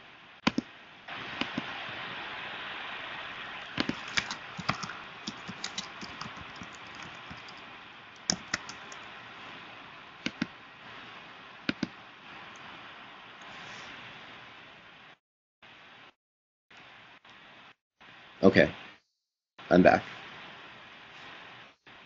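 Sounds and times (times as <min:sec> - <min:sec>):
steady hiss: 0:00.0 - 0:19.0, 0:19.6 - 0:22.0
keyboard keys clicking: 0:03.8 - 0:07.6, 0:08.2 - 0:09.1.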